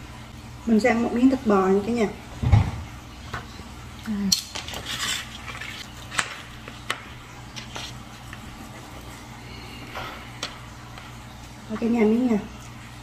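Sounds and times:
cutlery scraping and clinking on plate: 4.4 - 6.2.

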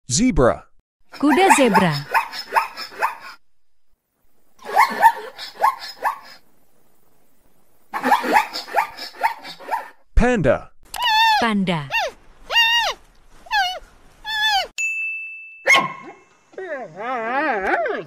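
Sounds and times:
zebra barking yelps: 1.2 - 3.4, 4.6 - 6.4, 7.9 - 10.0, 11.1 - 14.7, 15.7 - 16.2.

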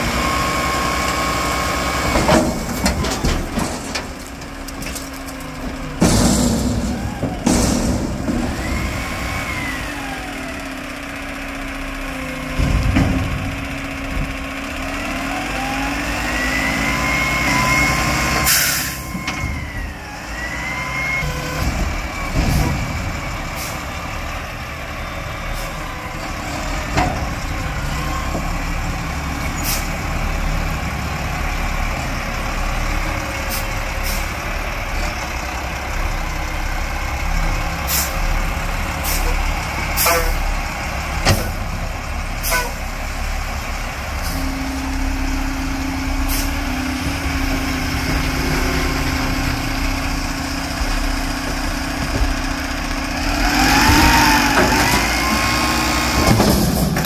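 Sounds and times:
diesel engine revving: 0.0 - 57.0
metal bangs and clunks: 2.1 - 9.3, 12.4 - 14.6, 21.3 - 23.6, 53.8 - 57.0.

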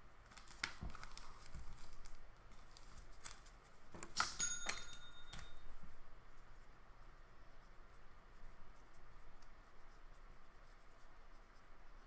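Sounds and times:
trading cards rustling and clicking: 0.2 - 5.6
short chime: 4.3 - 5.7.

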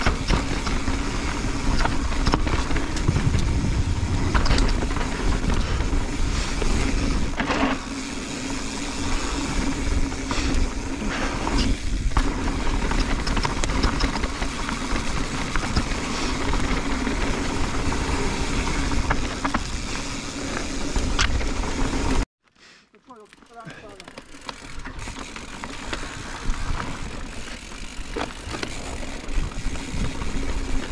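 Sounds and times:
wind buffeting microphone: 0.0 - 7.4
bike rattles and knocks: 0.0 - 22.2, 23.2 - 30.9
tyres rolling on dirt: 0.0 - 22.2, 23.1 - 30.9.

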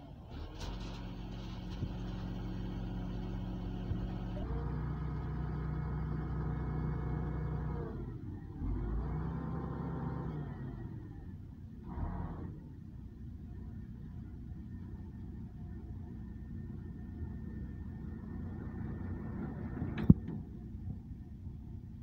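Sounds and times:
truck engine revving: 0.3 - 12.8.

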